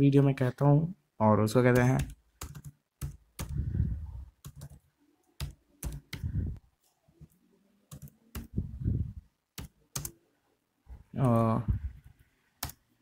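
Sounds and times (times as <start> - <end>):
keyboard typing: 1.7 - 6.6, 7.2 - 8.8, 9.5 - 10.2, 11.2 - 12.9.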